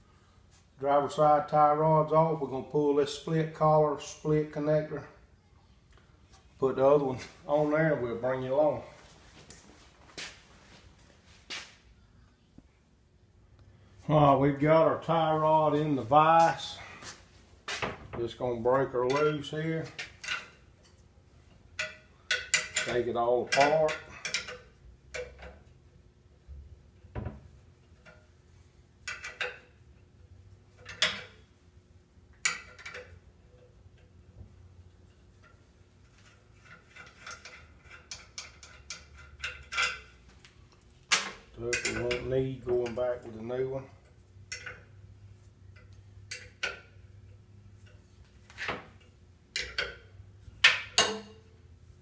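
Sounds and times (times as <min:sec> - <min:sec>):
faint steady hum: 0:00.0 - 0:52.0
metallic clinks and clanks: 0:21.7 - 0:25.7, 0:35.0 - 0:43.3, 0:44.0 - 0:45.0, 0:45.7 - 0:48.1, 0:49.0 - 0:51.6
metal knocks: 0:50.6 - 0:51.4.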